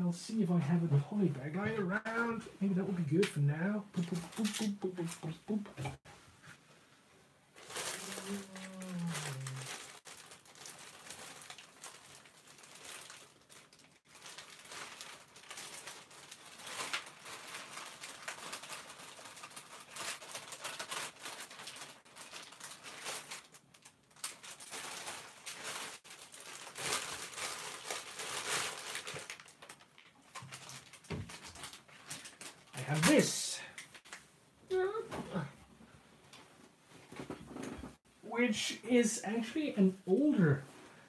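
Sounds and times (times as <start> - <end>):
plastic packaging crinkling: 7.6 - 34.2
person humming a falling note: 8.1 - 9.7.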